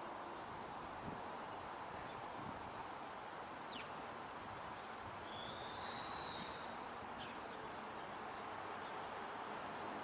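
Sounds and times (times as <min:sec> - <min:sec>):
outdoor background hiss: 0:00.0 - 0:10.0
bird chirps: 0:04.8 - 0:08.4
bird whistle: 0:05.3 - 0:06.7.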